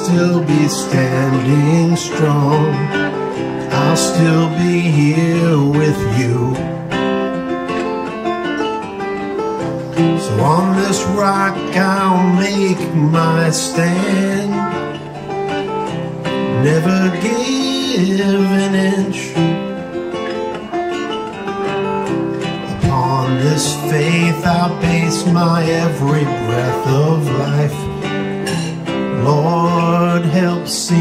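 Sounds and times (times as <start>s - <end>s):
man singing: 0.0s - 6.8s, 10.2s - 15.1s, 16.3s - 19.7s, 22.5s - 31.0s
strummed acoustic guitar: 0.0s - 31.0s.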